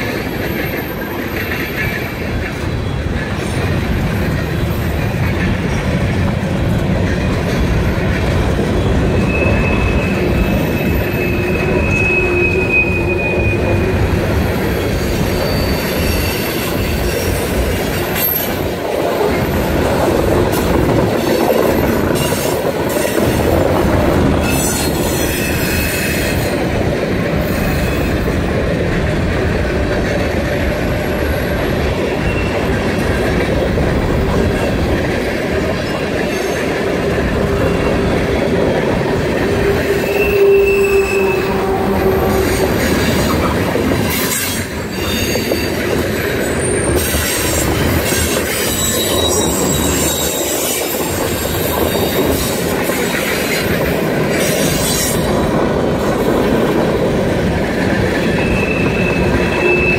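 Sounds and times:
freight train wheels rumbling on rails: 0:00.0 - 0:59.9
high wheel squeal: 0:08.7 - 0:18.8, 0:24.4 - 0:26.7, 0:31.2 - 0:32.8, 0:35.7 - 0:38.5, 0:39.2 - 0:55.6, 0:58.2 - 0:59.9.

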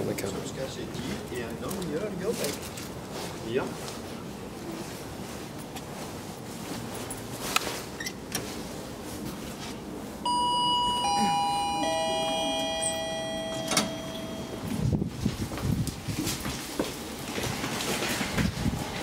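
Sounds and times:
elevator chime descending notes: 0:10.2 - 0:14.7.

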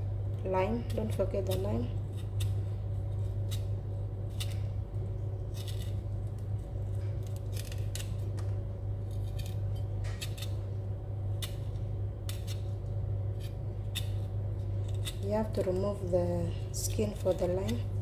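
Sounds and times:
low hum: 0:00.0 - 0:18.0
knife scraping lime rind: 0:00.7 - 0:04.7, 0:05.4 - 0:08.3, 0:09.0 - 0:10.7, 0:11.3 - 0:18.0.

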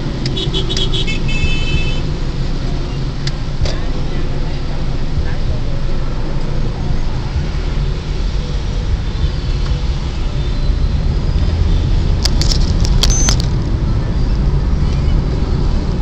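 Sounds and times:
car cabin engine and road rumble: 0:00.0 - 0:16.0
sharp clicks: 0:12.2 - 0:13.7
short high beep: 0:13.0 - 0:13.4.

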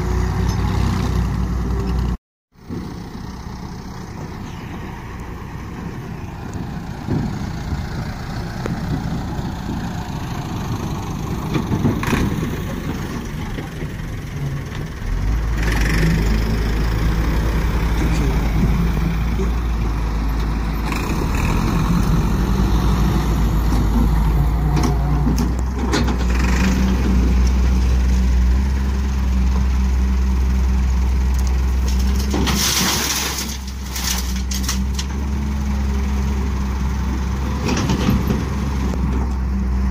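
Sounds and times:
diesel engines running: 0:00.0 - 0:39.9
soil dumped into trailer: 0:31.8 - 0:35.0.

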